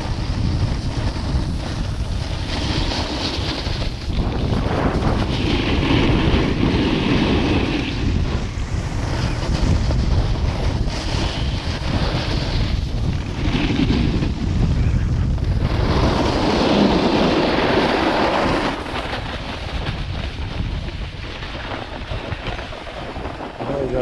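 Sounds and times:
snowboard edges scraping snow: 0.0s - 24.0s
wind buffeting microphone: 0.0s - 24.0s.

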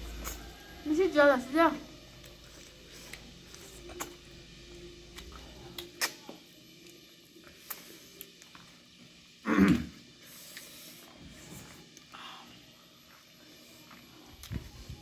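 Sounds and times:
lip smacks and chewing: 5.1s - 6.9s
loud throat noise: 9.4s - 10.0s.

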